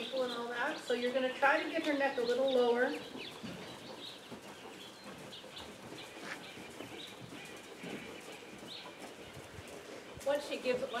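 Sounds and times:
birds chirping faintly: 0.0 - 11.0.

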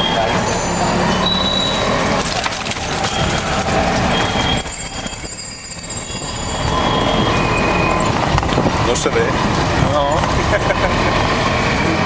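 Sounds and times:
road noise: 0.0 - 12.0
dense rattle: 2.0 - 6.4.

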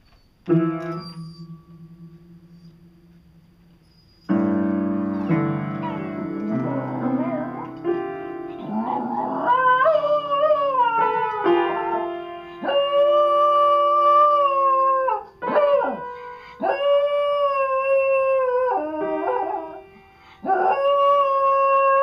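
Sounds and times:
piano notes: 0.0 - 22.0
dog howling: 8.6 - 19.8.

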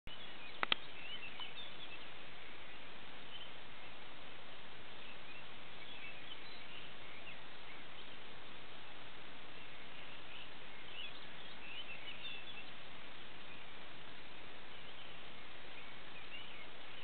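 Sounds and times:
small birds twittering: 0.1 - 17.0
steady hiss: 0.1 - 17.0
sharp clicks: 0.6 - 0.8.

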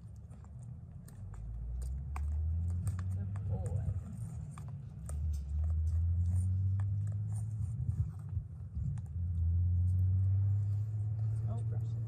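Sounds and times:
wind rumble on microphone: 2.6 - 12.0.

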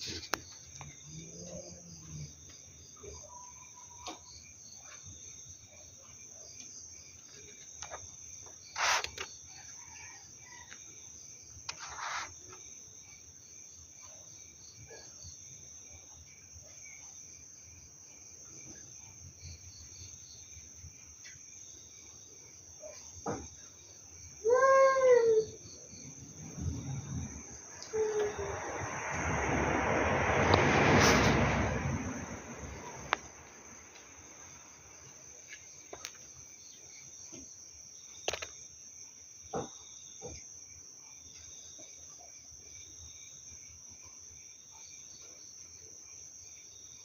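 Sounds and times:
crickets trilling: 0.0 - 47.0
cat yowling: 24.4 - 25.6, 27.8 - 28.6.

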